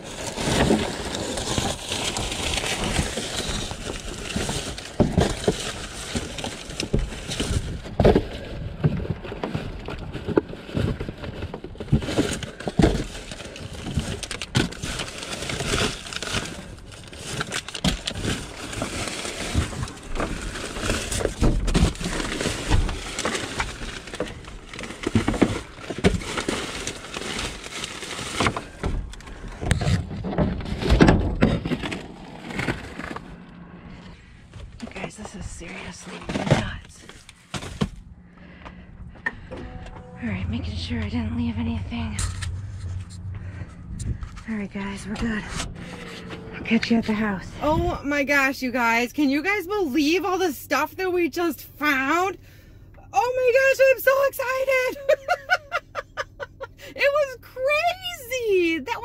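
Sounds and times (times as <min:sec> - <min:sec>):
plastic bags rustling and crinkling: 0:00.0 - 0:38.6.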